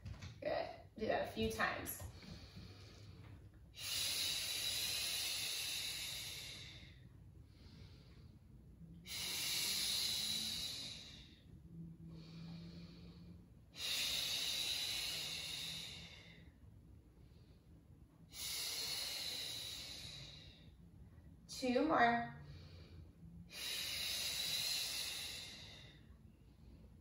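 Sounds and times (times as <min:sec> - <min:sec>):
woman exhaling: 0:03.8 - 0:07.0, 0:09.0 - 0:11.5, 0:13.8 - 0:16.5, 0:18.3 - 0:20.6, 0:23.5 - 0:26.0.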